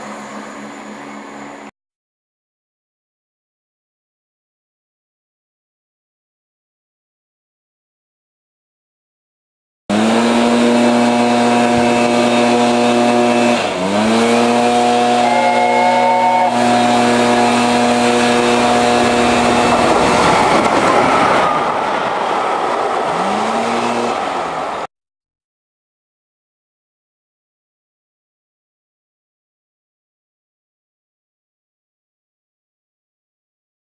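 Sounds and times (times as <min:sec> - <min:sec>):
steam locomotive whistle: 0:09.9 - 0:20.2
train passing at speed: 0:09.9 - 0:24.9.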